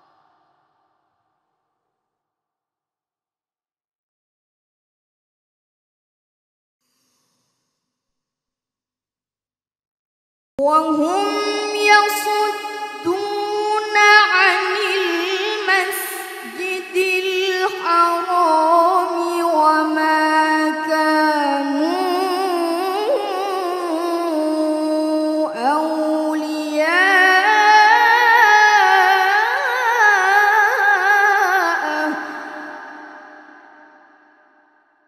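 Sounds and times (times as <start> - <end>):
boy reciting melodically: 10.6 - 33.3.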